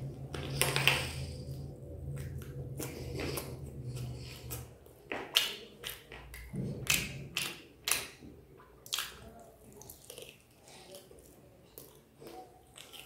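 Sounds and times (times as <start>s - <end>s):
low steady hum: 0.0s - 13.0s
wet mouth smacks and chewing: 8.8s - 13.0s.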